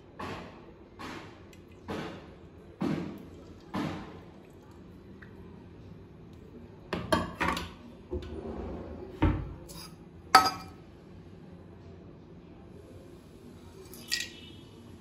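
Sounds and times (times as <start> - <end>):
dishes and utensils clinking: 9.6 - 10.8, 13.8 - 14.5.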